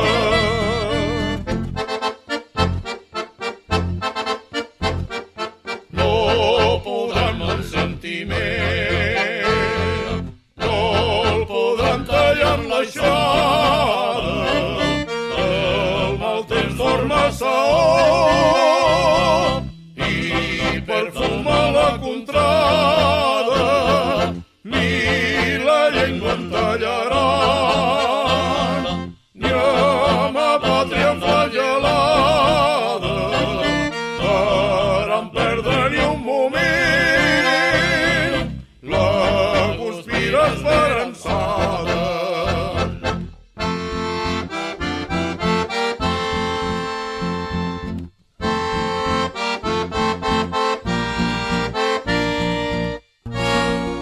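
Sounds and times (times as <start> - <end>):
accordion: 0.0 - 54.0
bass accompaniment: 0.0 - 54.0
vocal group singing in harmony: 6.0 - 43.1.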